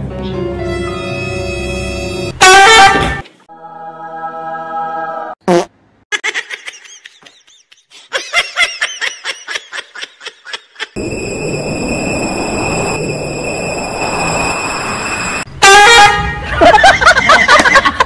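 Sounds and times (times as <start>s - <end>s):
comedy fart sound effect: 5.4s - 5.8s
high-pitched laughing sound effect: 6.1s - 11.0s.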